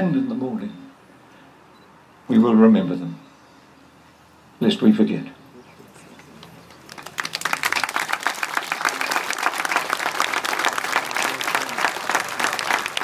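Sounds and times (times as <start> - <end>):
crowd applauding: 6.0 - 13.0.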